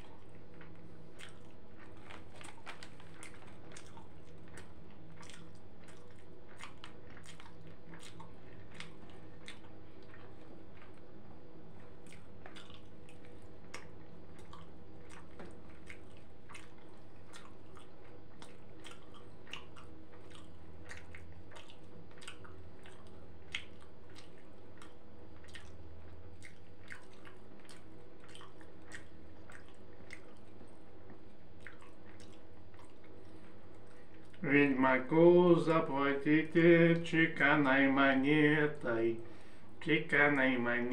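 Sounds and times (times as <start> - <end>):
steady hum: 0.0 - 40.9
wet chewing: 0.0 - 40.9
lip smacking clicks: 11.8 - 25.8, 26.4 - 30.6.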